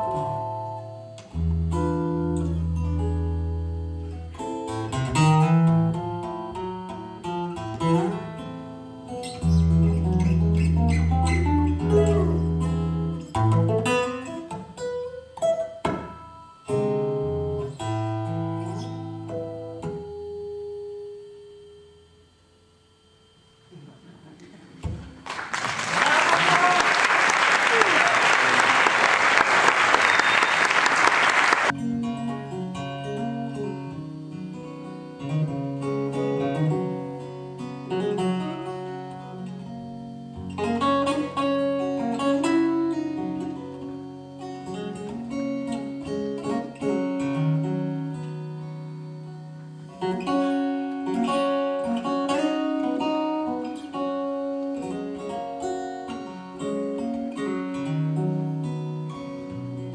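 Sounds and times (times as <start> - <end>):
plucked acoustic guitar: 0.0 - 21.1, 31.7 - 59.9
audience applause: 25.1 - 31.7.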